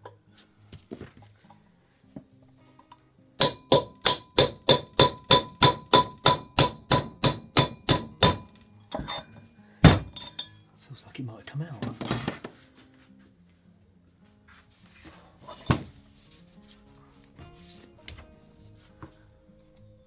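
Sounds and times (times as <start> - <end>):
hammer striking metal: 3.4 - 10.6.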